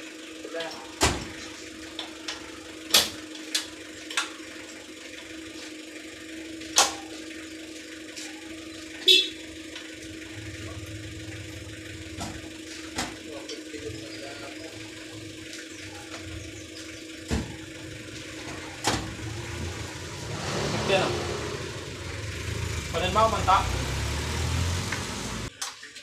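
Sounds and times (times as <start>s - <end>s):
steady hum: 9.0s - 24.0s.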